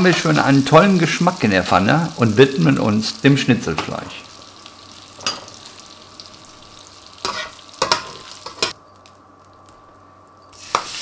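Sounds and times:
bacon sizzling in a frying pan: 0.0 - 9.8, 10.4 - 11.0
metal spatula scraping a pan: 7.2 - 8.7.

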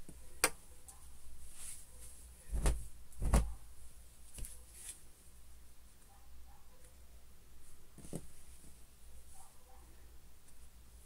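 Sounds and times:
fabric rustling and brushing: 1.2 - 5.2, 7.6 - 9.5
soft thumps: 2.5 - 3.6.

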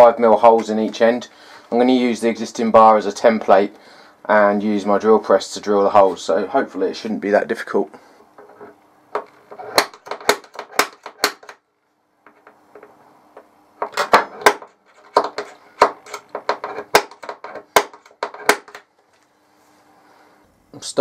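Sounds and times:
centre punch tapping on steel: 9.2 - 11.6, 13.8 - 18.8.

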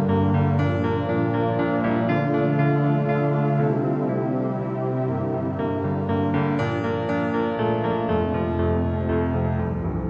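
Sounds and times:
slow keyboard music: 0.0 - 10.0.

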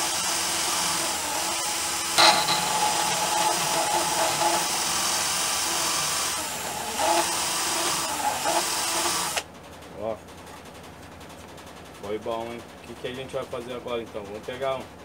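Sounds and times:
cordless drill running: 0.0 - 9.5.

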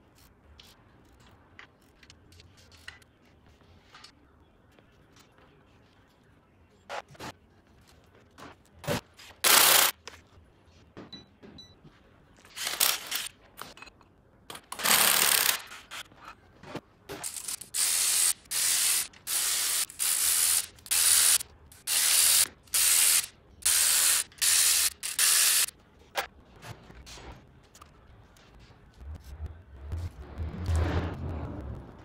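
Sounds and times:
ratchet wrench strokes: 17.2 - 25.7.

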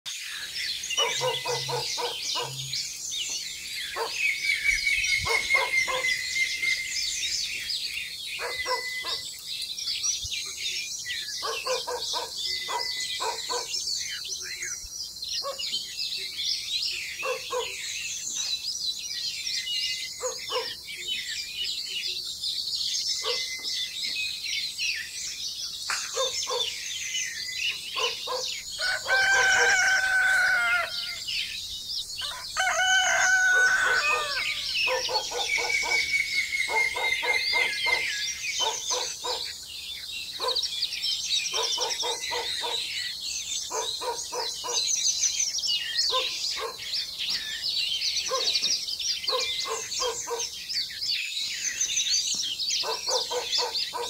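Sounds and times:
small birds chirping: 0.0 - 54.0
rooster crowing: 28.7 - 31.4, 32.2 - 36.0.

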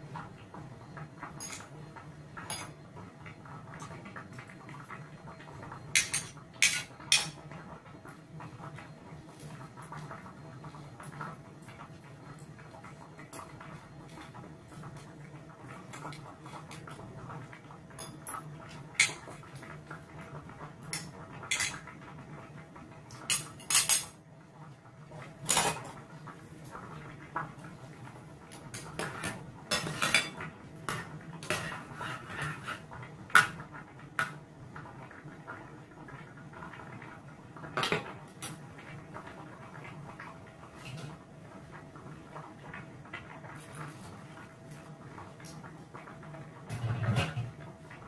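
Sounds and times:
cutlery clinking on ceramic plate: 6.0 - 7.4, 21.5 - 21.8, 23.3 - 24.1.

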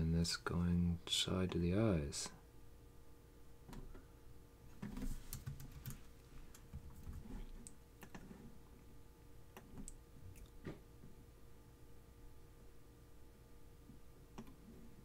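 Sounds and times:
computer mouse and keyboard clicks: 4.8 - 8.4, 9.6 - 10.5, 14.3 - 14.6.

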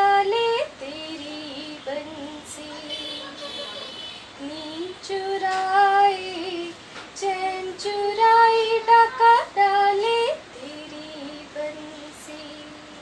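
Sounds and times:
woman singing devotional song: 0.0 - 13.0.

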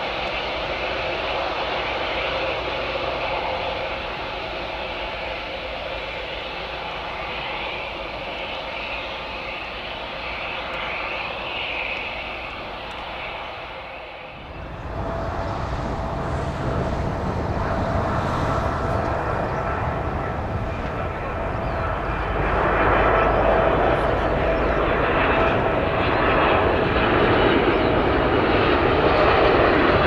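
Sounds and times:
jet engines deep rumble: 0.0 - 30.0
jet engines whining: 0.0 - 30.0.

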